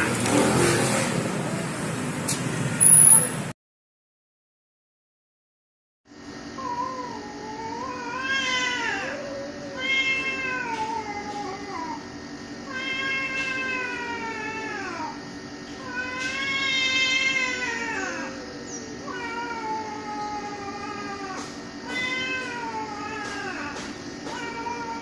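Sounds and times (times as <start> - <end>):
steady low hum: 6.1 - 25.0
cat yowling: 6.6 - 15.2, 15.8 - 25.0.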